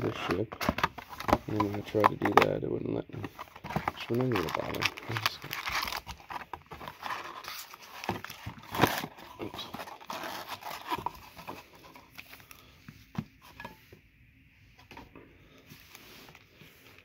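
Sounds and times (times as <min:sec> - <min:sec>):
foil packs crinkling: 0:03.3 - 0:12.7.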